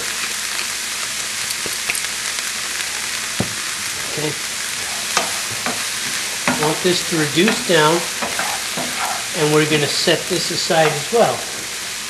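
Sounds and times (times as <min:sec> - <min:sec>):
onions and garlic sizzling in a pan: 0:00.0 - 0:12.0
wooden spoon stirring in a pan: 0:03.5 - 0:12.0.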